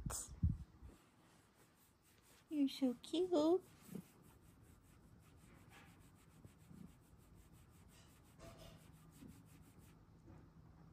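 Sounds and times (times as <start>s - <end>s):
hand rubbing cat fur: 0.9s - 10.2s.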